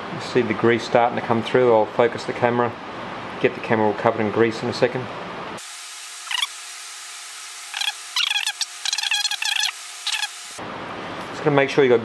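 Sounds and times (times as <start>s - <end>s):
grease squelching and squeaking: 7.8s - 10.3s.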